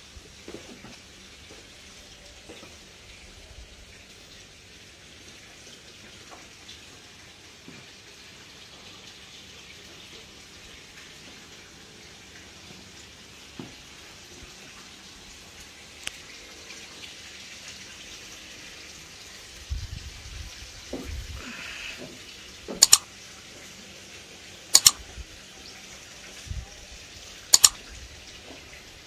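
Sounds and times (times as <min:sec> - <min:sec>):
faint clicks: 0:22.8 - 0:23.0, 0:24.8 - 0:25.0, 0:27.5 - 0:27.8.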